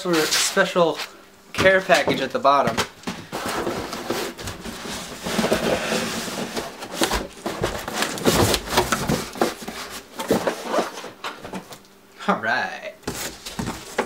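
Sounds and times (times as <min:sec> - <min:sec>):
cardboard flaps rustling: 0:01.6 - 0:11.8, 0:13.0 - 0:14.0
cardboard box scraping: 0:03.2 - 0:11.6.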